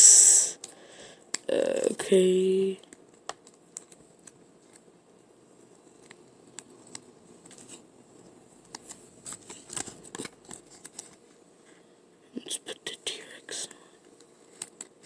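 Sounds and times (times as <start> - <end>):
paper sticker peeling crinkle: 3.1 - 4.8, 8.6 - 11.2.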